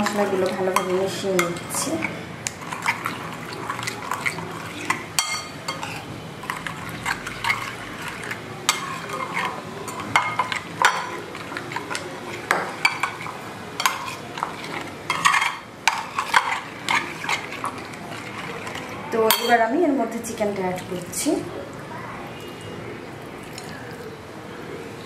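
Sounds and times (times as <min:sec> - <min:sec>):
spoon scraping a bowl: 0:00.0 - 0:19.6
spoon stirring thick marinade: 0:00.0 - 0:19.6.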